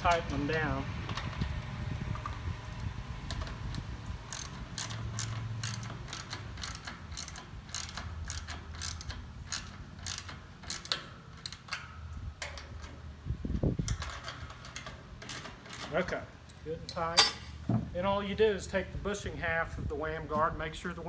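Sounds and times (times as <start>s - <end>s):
ratchet wrench clicking: 2.2s - 11.9s.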